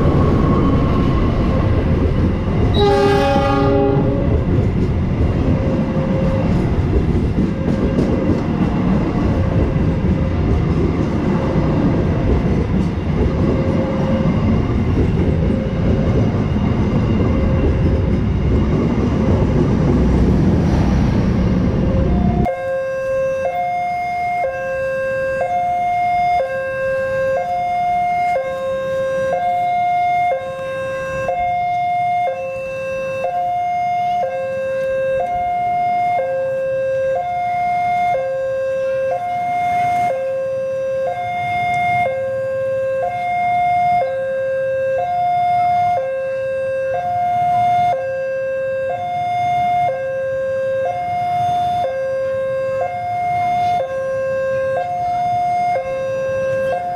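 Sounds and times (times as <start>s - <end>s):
level crossing two-tone alarm: 22.1s - 56.9s.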